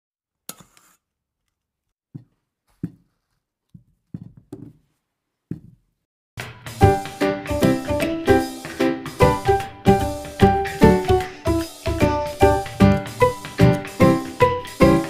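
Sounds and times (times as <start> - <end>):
music: 6.4 - 15.0.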